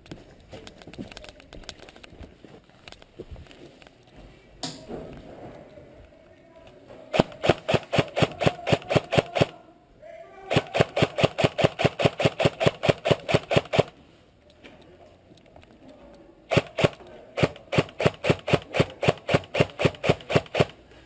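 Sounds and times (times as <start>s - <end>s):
airsoft rifle full-auto bursts: 7.1s - 9.6s, 10.5s - 13.9s, 16.5s - 20.8s.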